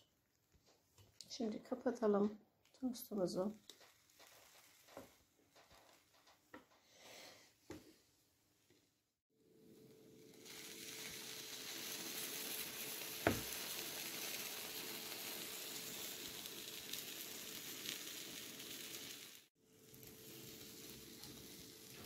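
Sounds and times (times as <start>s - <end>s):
sandwiches sizzling on contact grill: 3.6s - 6.5s, 9.6s - 22.0s.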